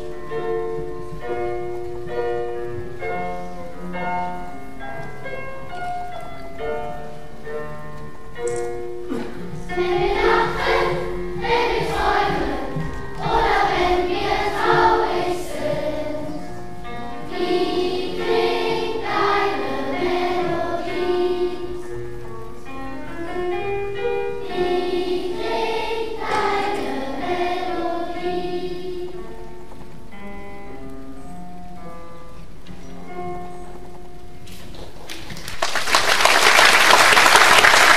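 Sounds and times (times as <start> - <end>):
instrumental backing music: 0.0 - 35.4
children's choir singing: 9.1 - 22.2, 24.0 - 29.8.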